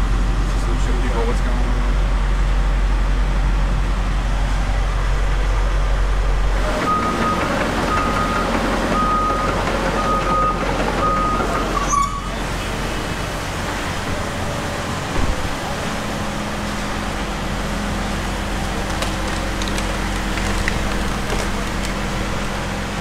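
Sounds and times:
excavator diesel engine: 0:00.0 - 0:23.0
backup alarm beeping: 0:06.7 - 0:12.3.

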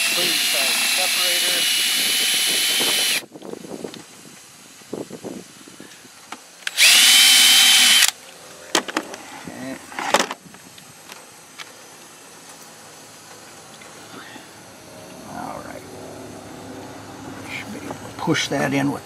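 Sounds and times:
cordless drill running: 0:00.0 - 0:03.3, 0:06.7 - 0:08.2.

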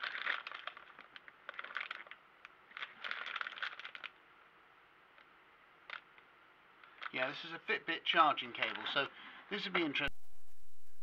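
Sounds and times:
packaging rustling and crinkling: 0:00.0 - 0:04.2.

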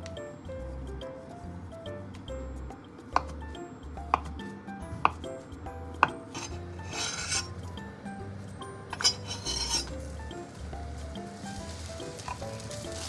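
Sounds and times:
knife chopping on wooden board: 0:03.1 - 0:05.4, 0:06.0 - 0:07.5
knife scraping board: 0:06.0 - 0:07.6, 0:08.9 - 0:10.0.

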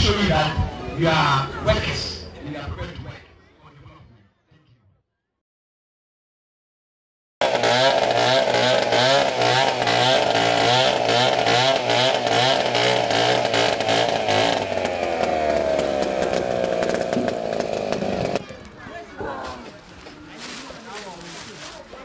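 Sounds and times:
chainsaw running: 0:07.4 - 0:18.5.

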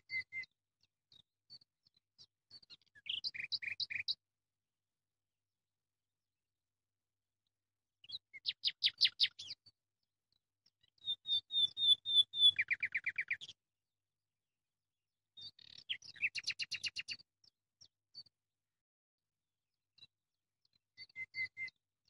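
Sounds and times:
bird singing: 0:02.6 - 0:04.2, 0:08.0 - 0:09.6, 0:10.8 - 0:13.6, 0:15.4 - 0:17.2, 0:21.0 - 0:21.8.

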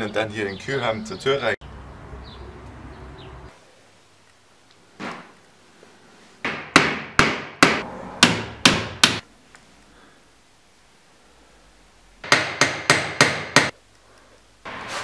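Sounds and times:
hammer striking wood: 0:06.4 - 0:09.2, 0:12.2 - 0:13.8.

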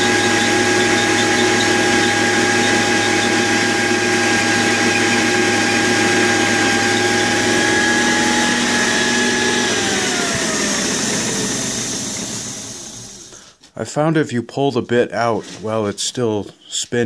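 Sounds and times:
metal lathe motor whine: 0:00.0 - 0:13.3.

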